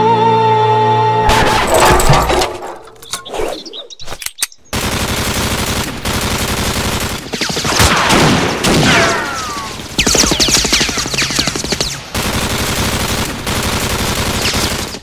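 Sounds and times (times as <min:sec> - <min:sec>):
clicks: 0:04.1 - 0:04.6
machine gun fire: 0:04.8 - 0:08.9, 0:09.6 - 0:15.0.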